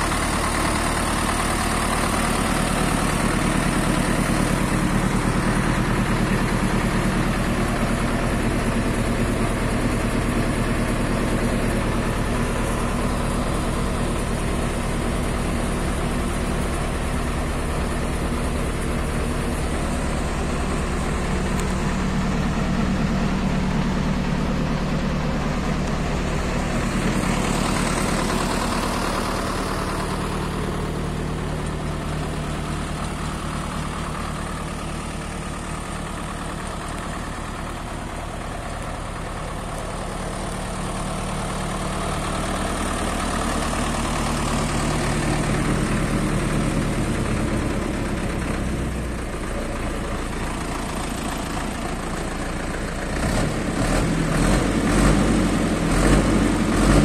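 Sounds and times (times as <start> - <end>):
diesel tractor engine idling: 0.0 - 57.0
engine knocks: 0.0 - 57.0.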